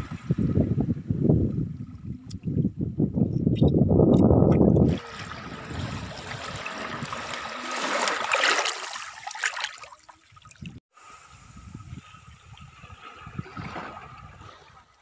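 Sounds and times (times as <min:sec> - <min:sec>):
small waves lapping: 0:04.8 - 0:10.7, 0:12.5 - 0:15.0.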